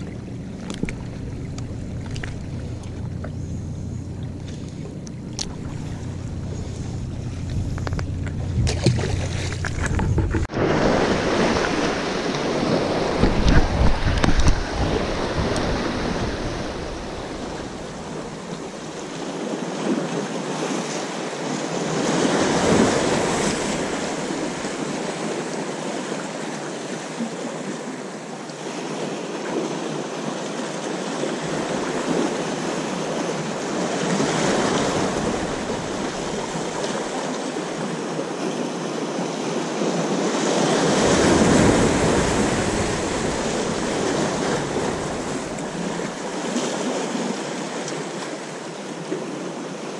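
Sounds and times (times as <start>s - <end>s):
wind buffeting microphone: 0.0s - 18.5s
waves breaking over rocks: 0.0s - 49.9s.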